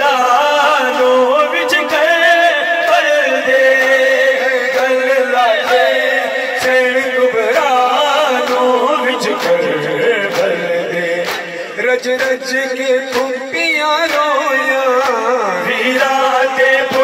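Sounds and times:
man chanting into a microphone: 0.0s - 17.0s.

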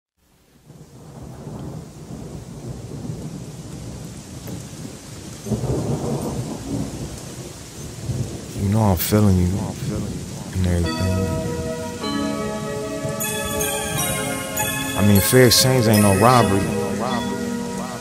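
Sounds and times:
rain falling: 0.3s - 18.0s
rumbling thunder: 0.7s - 14.3s.

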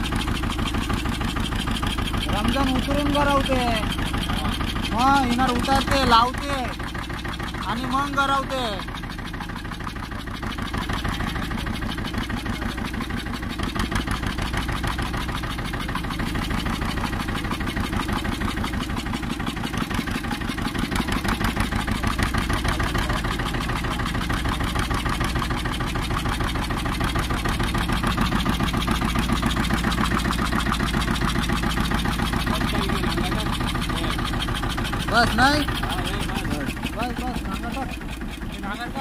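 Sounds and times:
boat engine chugging: 0.0s - 39.0s.

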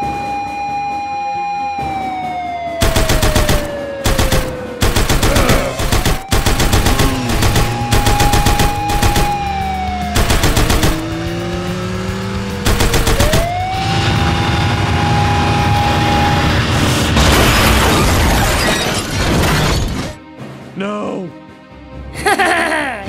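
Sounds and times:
toy machine-gun fire: 2.8s - 9.5s, 10.2s - 11.1s, 12.6s - 13.5s
toy siren tone: 5.4s - 11.0s.

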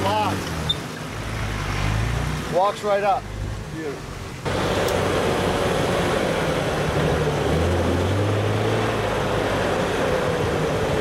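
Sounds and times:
car engine running: 3.3s - 11.0s.

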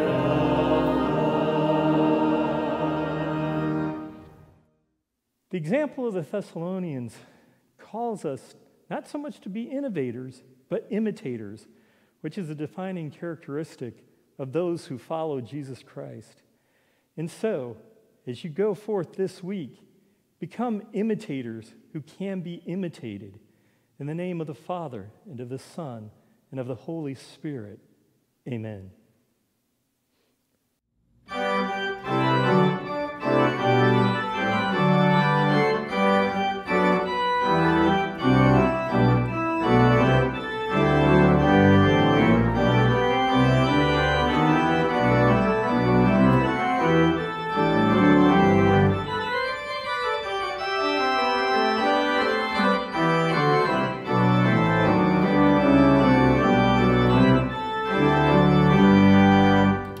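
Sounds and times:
church organ chords: 0.0s - 4.7s, 31.3s - 60.0s.

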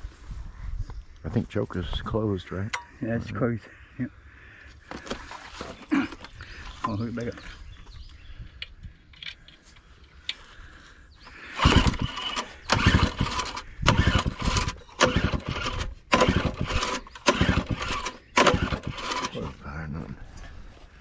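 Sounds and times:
generator engine turning over: 11.3s - 19.5s
recoil starter pulls: 11.3s - 19.6s.

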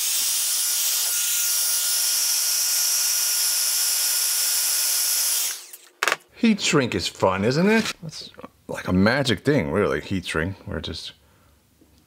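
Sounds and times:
heat gun blowing hot air: 0.0s - 2.1s.

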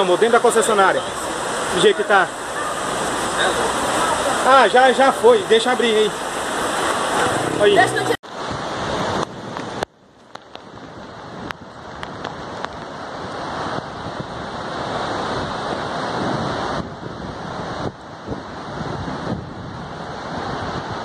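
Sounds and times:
floodwater rushing down street: 0.0s - 21.0s
heavy rain: 0.0s - 21.0s
wind buffeting microphone: 0.6s - 21.0s.

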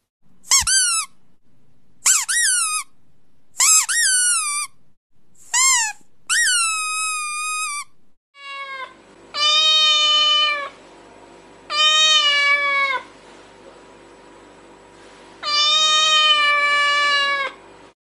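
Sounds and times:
high pitch-bending squeaks: 0.4s - 1.2s, 2.0s - 3.0s, 3.6s - 4.8s, 5.4s - 8.0s
cat meowing: 8.4s - 10.8s, 11.7s - 13.1s, 15.4s - 17.6s.

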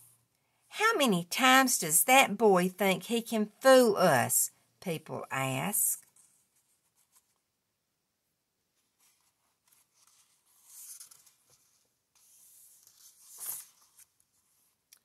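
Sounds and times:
paper page turning: 8.8s - 14.7s.

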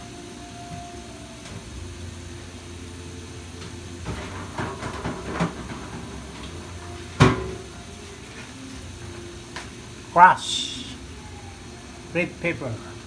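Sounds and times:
faint crackling of frying: 0.0s - 13.0s
gas burner hiss and rumble: 0.0s - 13.0s.

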